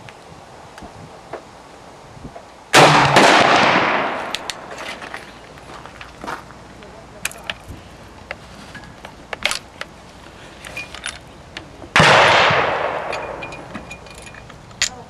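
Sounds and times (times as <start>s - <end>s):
gunshot with echo: 2.8s - 4.4s, 12.0s - 13.4s
rifle mechanism clicks: 9.3s - 9.9s.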